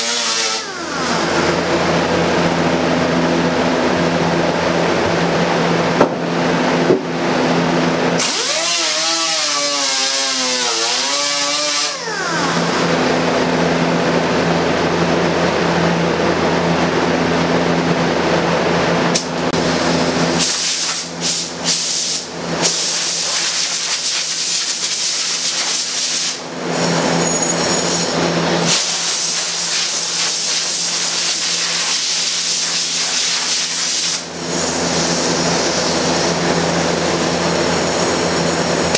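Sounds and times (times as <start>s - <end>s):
air grinder grinding: 0.0s - 1.8s, 8.2s - 13.2s, 20.4s - 36.6s.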